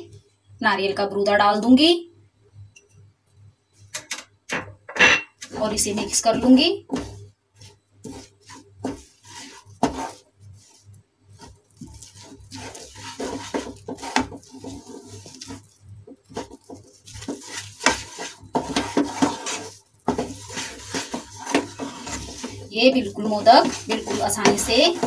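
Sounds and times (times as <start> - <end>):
wooden spatula scraping a pan: 5.4 - 25.0.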